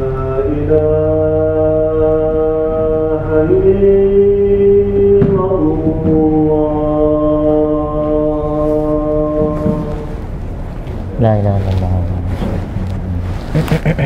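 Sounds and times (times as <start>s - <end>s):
slow chant of held notes: 0.0s - 10.3s.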